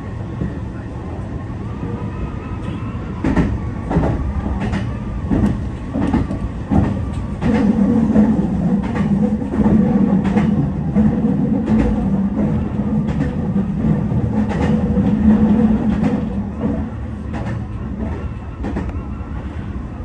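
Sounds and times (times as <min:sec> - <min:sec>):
train running hum: 0:00.0 - 0:20.0
train wheels clacking over rail joints: 0:03.2 - 0:19.0.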